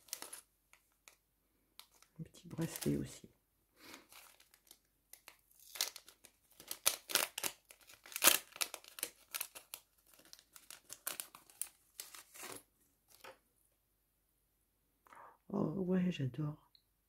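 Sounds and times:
packet crinkling and tearing: 0.0s - 1.2s, 1.8s - 3.2s, 3.8s - 13.3s.

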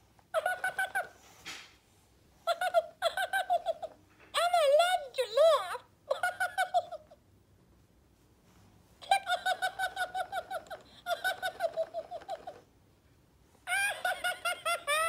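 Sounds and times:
toy giggling in high voice: 0.3s - 1.2s, 2.4s - 7.2s, 9.0s - 12.7s, 13.6s - 15.0s.

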